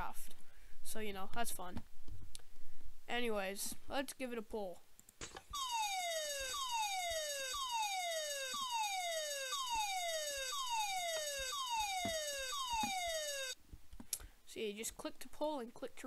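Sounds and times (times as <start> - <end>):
siren sweeping downward: 5.6 - 13.6.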